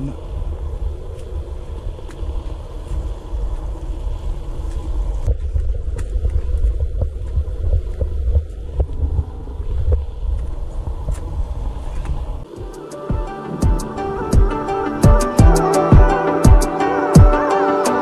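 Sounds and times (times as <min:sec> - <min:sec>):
buffeting rumble on microphone: 0:00.0 - 0:12.5.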